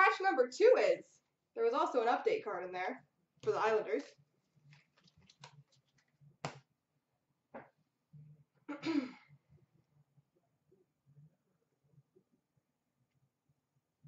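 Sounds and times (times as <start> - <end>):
cards being shuffled and tapped: 4.6 - 6.7.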